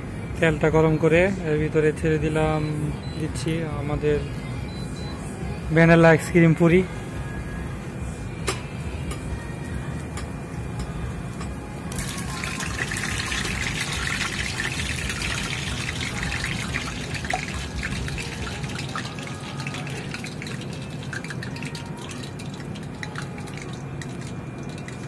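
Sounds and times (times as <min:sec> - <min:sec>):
oil sizzling and popping: 0:11.9 - 0:25.0.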